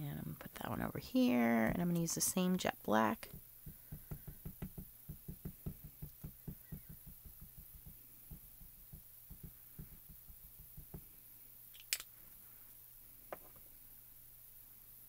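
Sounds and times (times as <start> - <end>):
ink pad tapping on stamp: 3.2 - 11.1.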